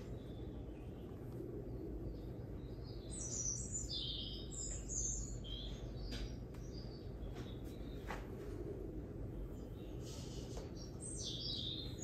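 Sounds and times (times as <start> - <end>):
small bird twittering: 2.0 - 8.1, 9.6 - 12.0.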